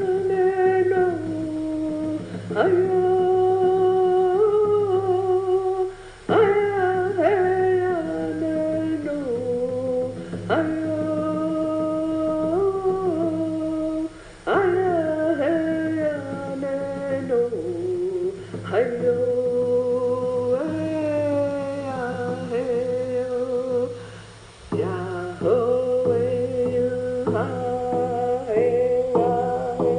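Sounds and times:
long held vocal notes: 0.0s - 29.9s
steady low hum: 0.0s - 29.9s.

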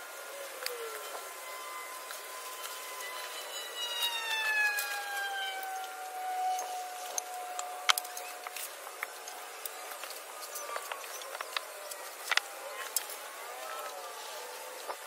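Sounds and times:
faint held tone: 0.0s - 8.5s.

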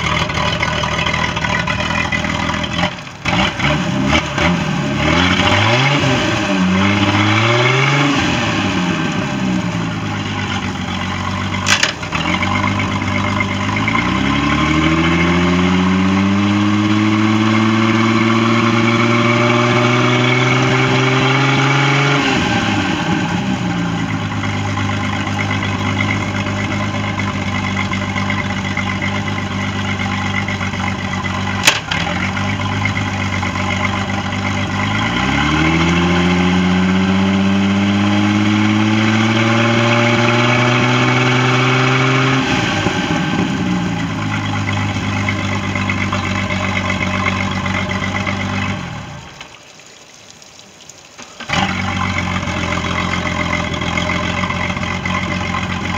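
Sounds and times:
boat engine revving: 0.0s - 49.5s, 51.2s - 55.9s
sharp click: 11.7s - 12.0s.

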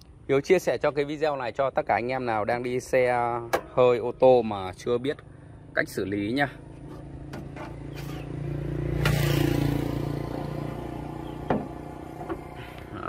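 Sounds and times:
road vehicle passing: 4.5s - 13.0s.

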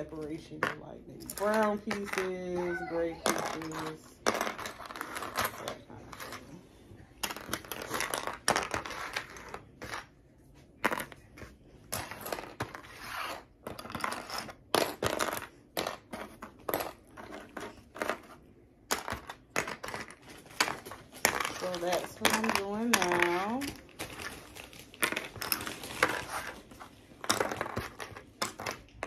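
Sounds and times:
plastic bags rustling: 20.1s - 27.7s.

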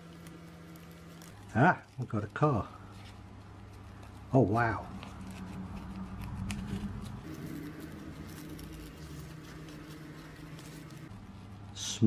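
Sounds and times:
newspaper crackling and rustling: 0.0s - 11.6s.

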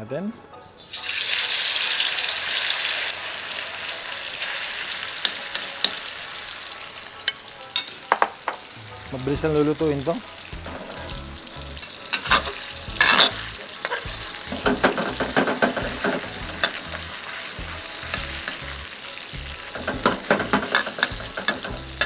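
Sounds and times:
meat sizzling in hot oil: 0.8s - 22.0s
metal spatula scraping a wok: 10.6s - 11.2s, 11.8s - 17.0s.

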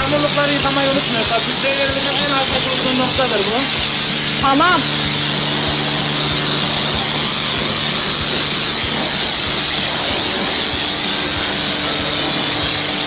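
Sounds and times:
low pump hum: 0.0s - 13.0s
hiss of pressure washer spray: 0.3s - 13.0s.

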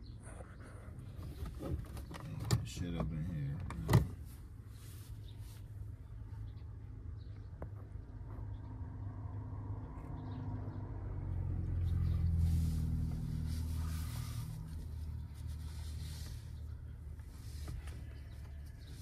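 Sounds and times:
car interior rumble: 0.0s - 19.0s.

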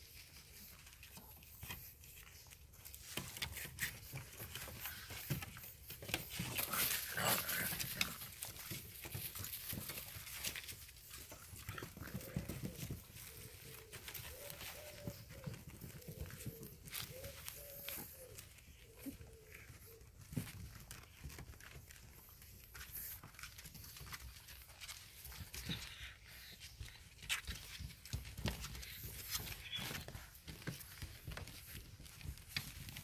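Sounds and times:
puppy claws clicking and scrabbling: 0.0s - 33.0s
puppy vocal sounds: 0.6s - 21.8s
puppy whines: 1.2s - 21.5s, 25.3s - 33.0s.

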